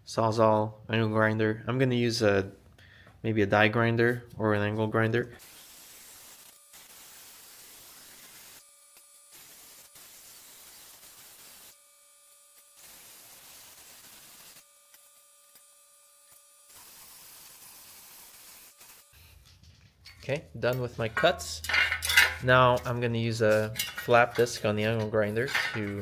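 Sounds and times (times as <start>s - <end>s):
grinder cutting sheet steel: 5.4s - 19.4s.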